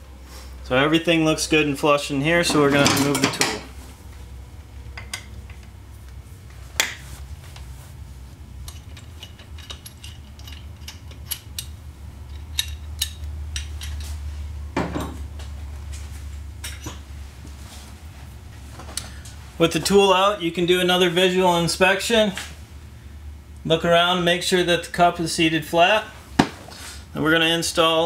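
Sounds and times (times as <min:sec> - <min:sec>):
metal tool clinks and clanks: 0:08.7 - 0:11.7.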